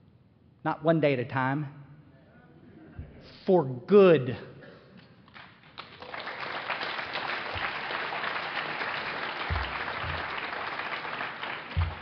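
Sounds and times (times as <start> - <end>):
audience applauding: 5.3 - 12.0.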